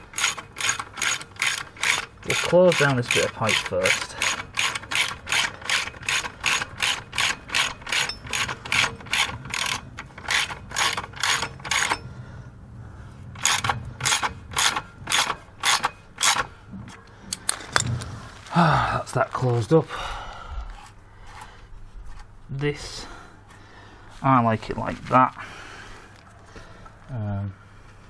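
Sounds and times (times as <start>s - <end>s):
hand ratchet clicking: 0.0s - 12.1s, 13.4s - 16.5s.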